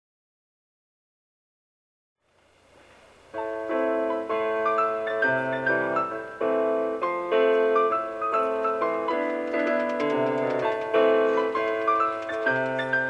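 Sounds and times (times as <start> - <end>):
piano chords: 3.0 - 13.0.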